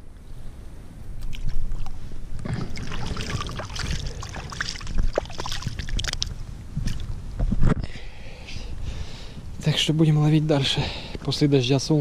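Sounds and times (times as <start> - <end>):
water splashing and sloshing: 1.2 - 7.1.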